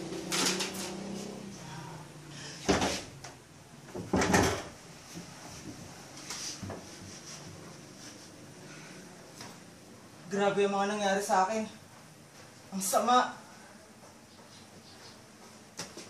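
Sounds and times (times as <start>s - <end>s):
loud knocks or thumps: 3.9s - 4.7s.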